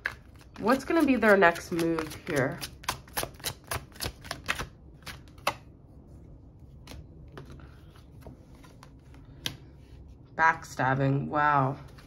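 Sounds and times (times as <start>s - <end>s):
cards being shuffled: 0.0s - 5.7s
cards clicking and tapping: 0.0s - 5.7s.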